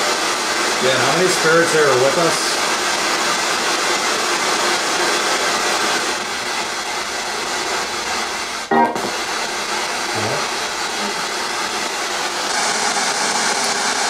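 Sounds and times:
broadcast sound snippet: 8.7 - 9.3.

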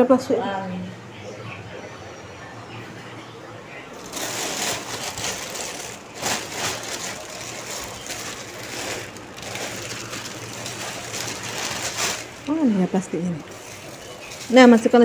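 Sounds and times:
plastic bags rustling: 3.9 - 15.0.

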